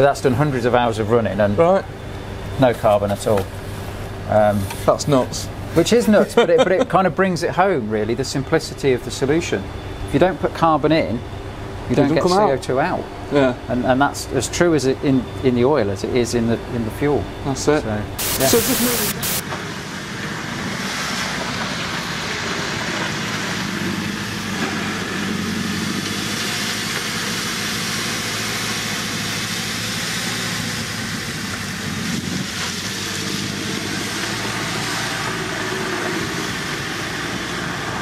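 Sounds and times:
backhoe loader engine running: 0:18.2 - 0:38.0.

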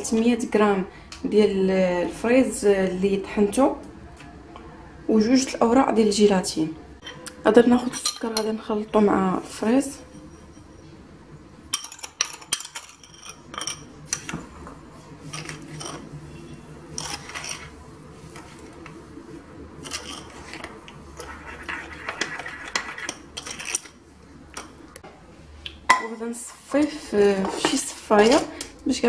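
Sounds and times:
spoon clinking and scraping bowl: 0:09.6 - 0:11.0, 0:11.7 - 0:14.4, 0:15.2 - 0:18.8, 0:19.8 - 0:24.0.

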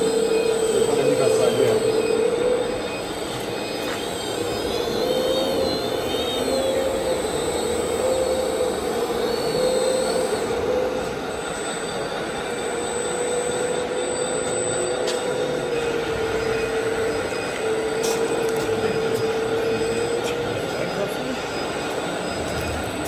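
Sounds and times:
constant mechanical noise: 0:00.0 - 0:23.0
model motor humming: 0:00.0 - 0:23.0.

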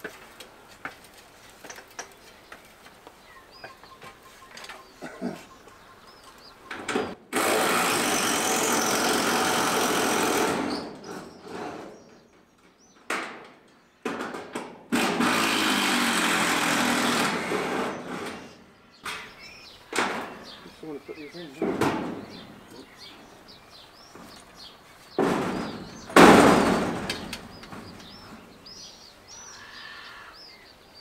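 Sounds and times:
power drill running: 0:07.3 - 0:10.9, 0:15.0 - 0:18.0.

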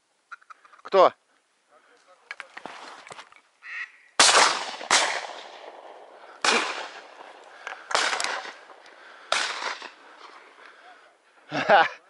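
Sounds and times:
shotgun shots echoing: 0:04.2 - 0:10.4.

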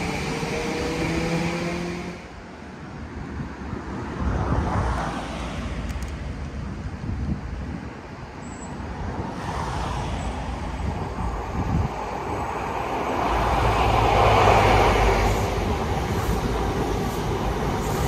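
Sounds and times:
diesel train engine rumble: 0:09.9 - 0:18.0.

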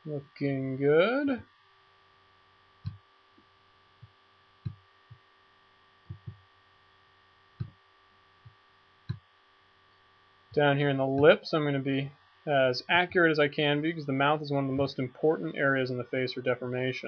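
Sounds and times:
low electrical hum: 0:00.0 - 0:17.0
computer mouse clicks: 0:06.1 - 0:06.4, 0:07.6 - 0:07.8.

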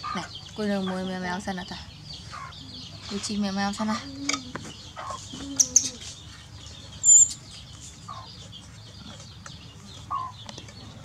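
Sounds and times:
birds chirping: 0:00.0 - 0:11.0
chickens clucking: 0:00.0 - 0:11.0
loud high-pitched chirp: 0:07.0 - 0:08.3.

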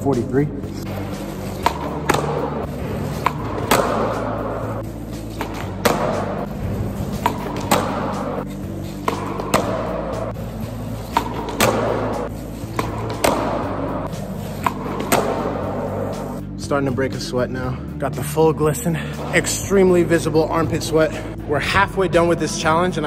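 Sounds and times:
skateboard snapping and landing: 0:01.6 - 0:04.3, 0:05.3 - 0:06.4, 0:07.2 - 0:08.4, 0:09.0 - 0:09.9, 0:11.1 - 0:13.8, 0:14.6 - 0:15.6.

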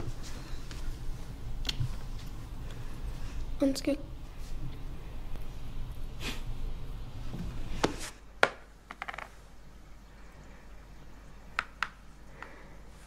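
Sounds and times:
low room hum: 0:00.0 - 0:13.0
game pieces tapping on a board: 0:08.4 - 0:09.3.

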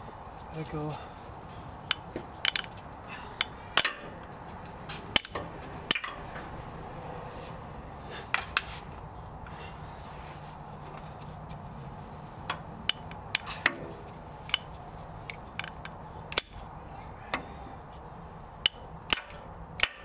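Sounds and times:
hand tools clinking on metal: 0:01.9 - 0:04.2, 0:05.1 - 0:06.2.

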